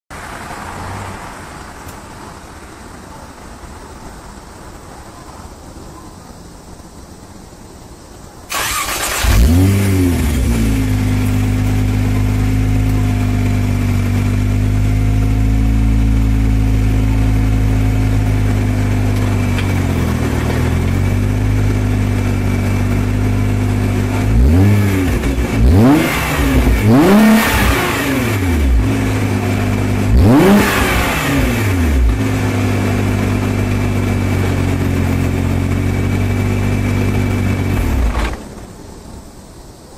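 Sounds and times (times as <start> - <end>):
engine revving: 8.5 - 38.4
car engine starting and idling: 8.5 - 38.8.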